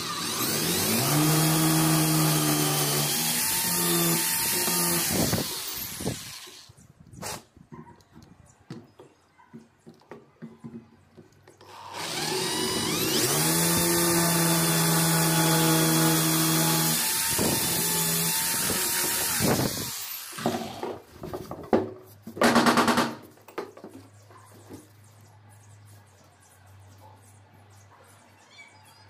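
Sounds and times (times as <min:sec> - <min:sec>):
electric drill boring into wood: 0:00.0 - 0:06.7, 0:11.6 - 0:20.9.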